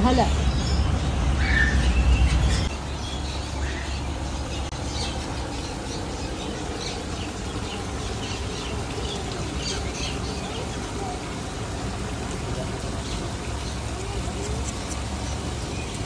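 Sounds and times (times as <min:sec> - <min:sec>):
birds chirping: 0:00.0 - 0:16.0
steady background hiss: 0:00.0 - 0:16.0.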